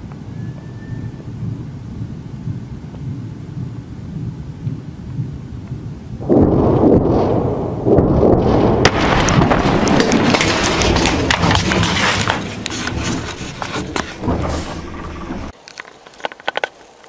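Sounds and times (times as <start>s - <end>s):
explosion rumble: 6.2s - 15.5s
sharp cracks and pops: 6.4s - 17.0s.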